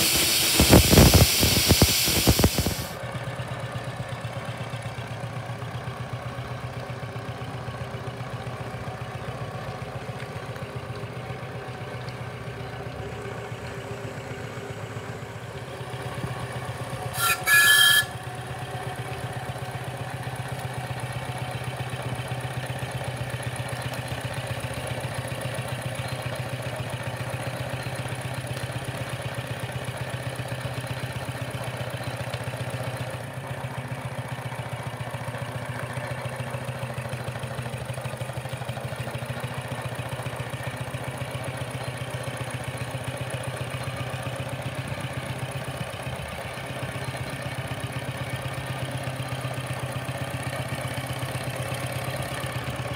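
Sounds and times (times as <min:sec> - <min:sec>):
steam whistle: 0:00.0 - 0:02.9, 0:17.1 - 0:18.4
steam tractor running: 0:00.0 - 0:52.9.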